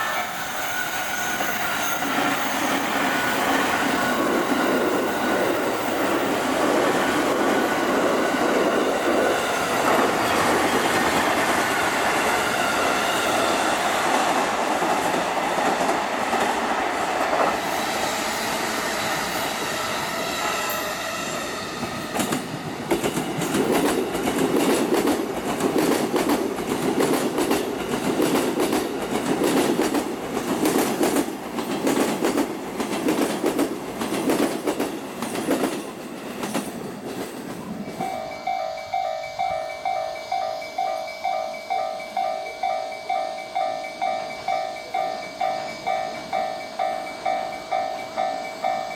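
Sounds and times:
train wheels rumbling on rails: 0.0 - 48.9
train wheels clacking over rail joints: 21.8 - 38.5.

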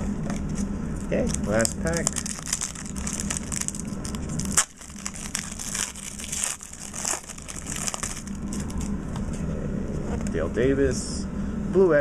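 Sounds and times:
wrapper crinkling and tearing: 1.3 - 8.9.

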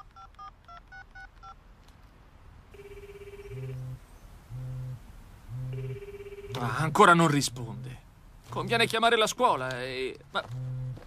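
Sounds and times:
phone keypad beeps: 0.0 - 1.6
phone ringing tone: 2.7 - 4.0, 5.5 - 7.0
phone vibrating buzz: 2.8 - 4.0, 4.6 - 6.6.

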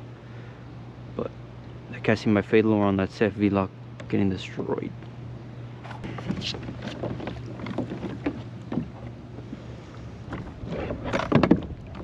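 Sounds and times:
steady low hum: 0.0 - 12.0
small water splashes: 11.3 - 12.0.

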